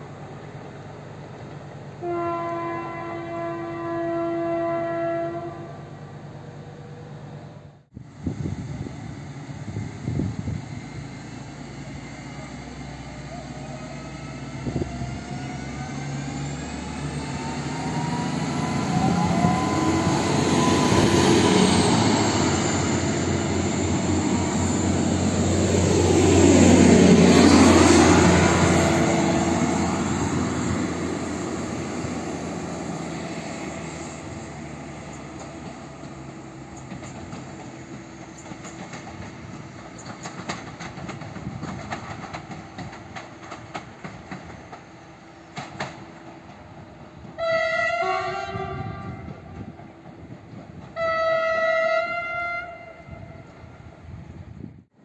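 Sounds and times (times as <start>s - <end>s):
wheel and rail rumble: 5.6s - 55.0s
train traction motors whining: 8.0s - 52.0s.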